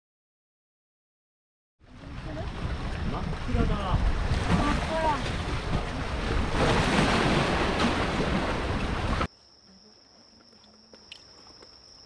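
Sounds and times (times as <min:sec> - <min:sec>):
wind and surf noise: 0:01.8 - 0:09.3
high-pitched insect trill: 0:09.3 - 0:12.0.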